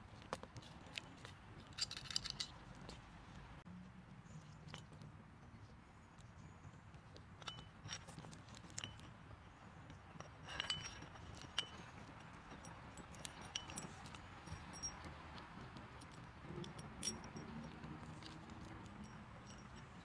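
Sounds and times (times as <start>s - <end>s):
metal parts clicking and clinking: 1.6s - 2.6s, 10.2s - 15.1s, 15.7s - 20.0s.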